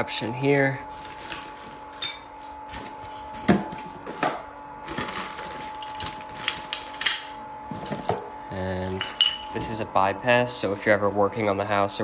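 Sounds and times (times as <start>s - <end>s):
plastic bags crinkling: 0.0s - 3.3s, 4.9s - 7.2s
cardboard packaging rustling: 0.2s - 4.2s, 4.8s - 7.0s.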